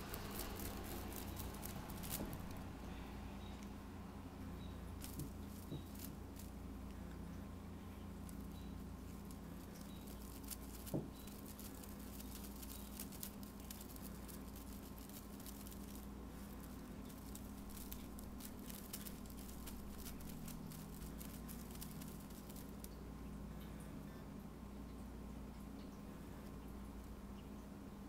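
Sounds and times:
cat paws swatting: 0.0s - 2.6s, 5.0s - 6.6s
feather toy rustling: 0.0s - 2.7s, 4.9s - 6.6s, 8.2s - 22.9s
steady low hum: 0.0s - 28.0s.

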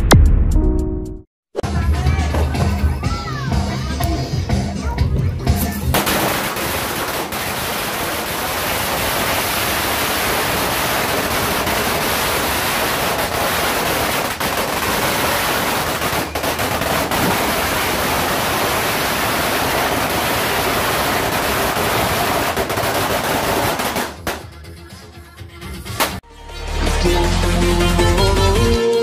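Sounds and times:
firecrackers crackling rapidly: 5.8s - 24.5s, 26.0s - 26.2s.

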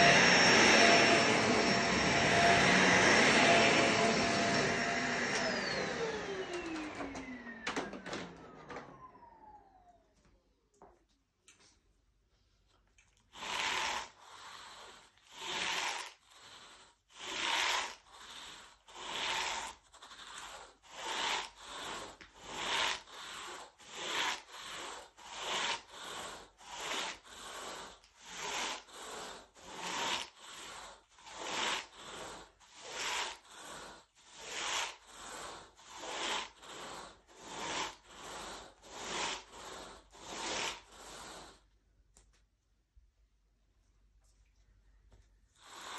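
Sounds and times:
rake dragged through carpet: 0.0s - 7.6s, 13.3s - 41.7s, 45.6s - 45.9s.

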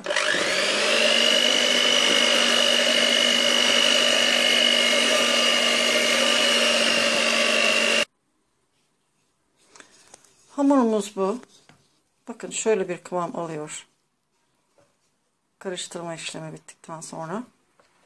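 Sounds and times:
electric hand mixer whining: 0.0s - 8.1s.

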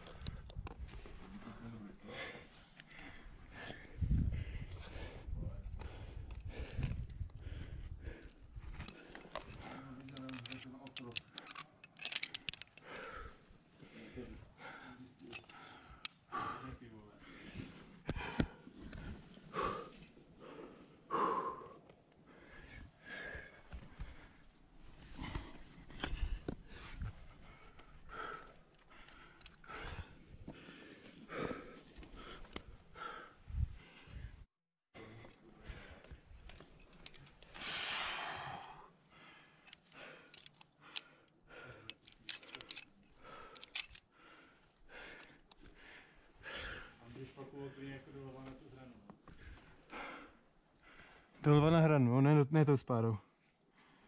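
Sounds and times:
person breathing hard: 2.0s - 9.8s, 12.4s - 47.0s, 49.3s - 51.4s
carabiner gates clicking: 8.8s - 12.9s, 39.6s - 41.1s, 41.8s - 44.0s.

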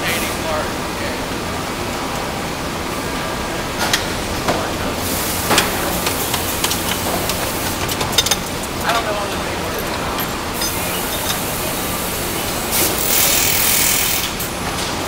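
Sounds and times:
factory assembly line noise: 0.0s - 15.0s
metallic clicks and clanks: 5.4s - 13.6s.

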